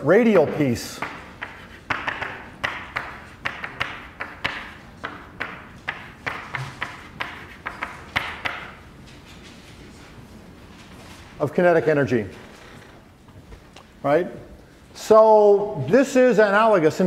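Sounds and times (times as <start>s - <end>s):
chalk tapping and scraping on blackboard: 1.0s - 8.8s.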